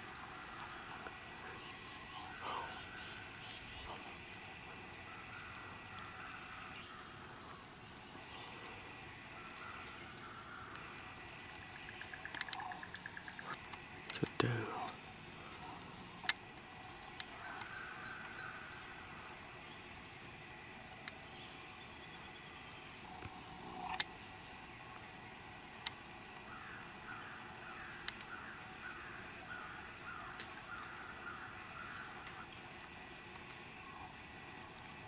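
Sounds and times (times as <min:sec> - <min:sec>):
high-pitched insect drone: 0:00.0 - 0:35.0
faint clicks: 0:11.9 - 0:18.5.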